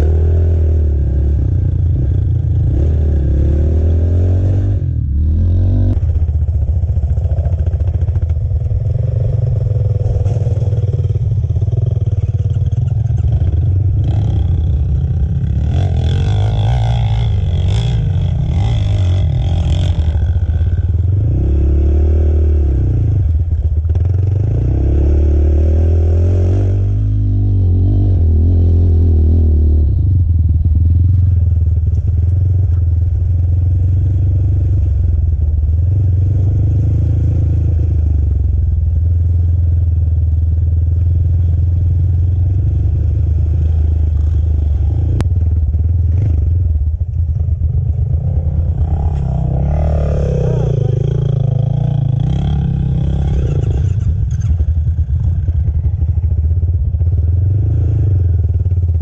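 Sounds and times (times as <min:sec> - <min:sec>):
quad engine revving: 0:00.0 - 0:06.1, 0:07.2 - 0:29.9, 0:47.8 - 0:54.8.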